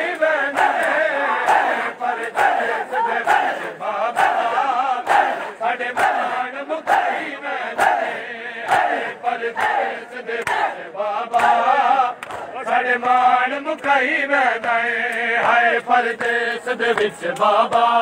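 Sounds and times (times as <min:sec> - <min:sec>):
hands slapping chests: 0:00.0 - 0:02.6, 0:08.6 - 0:12.5
crowd of men chanting: 0:00.0 - 0:18.0.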